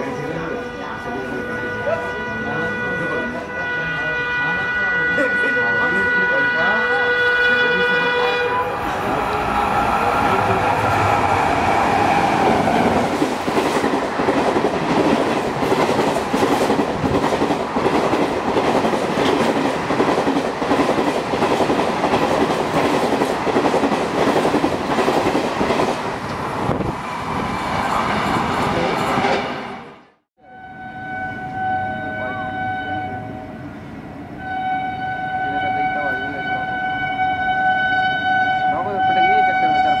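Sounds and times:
train horn: 0.0s - 13.1s, 30.4s - 33.7s, 34.4s - 40.0s.

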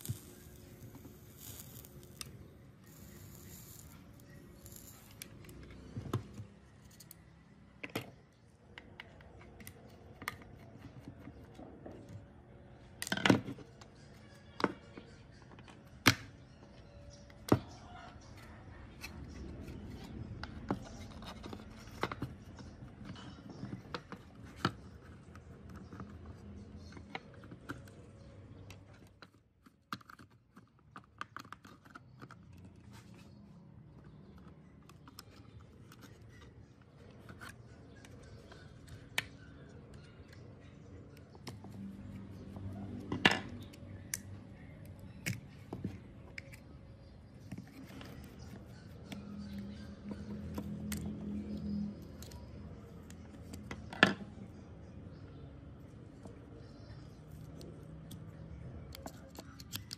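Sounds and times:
plastic clicks and snaps: 58.9s - 59.9s.

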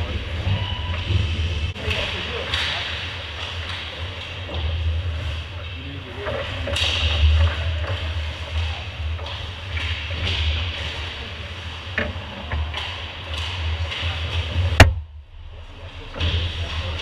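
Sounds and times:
hockey sticks clicking: 1.8s - 4.8s, 6.2s - 14.9s
low rumble: 12.5s - 17.0s.

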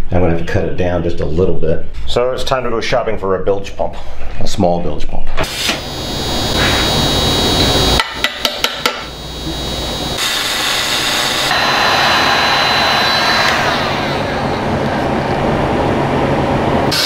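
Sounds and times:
heat gun blowing with whine: 5.4s - 15.7s, 16.8s - 17.0s
machine whirring: 5.4s - 17.0s.

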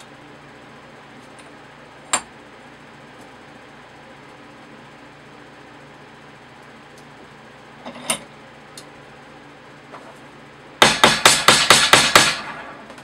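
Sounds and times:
hammer beating sheet metal: 10.8s - 12.9s.

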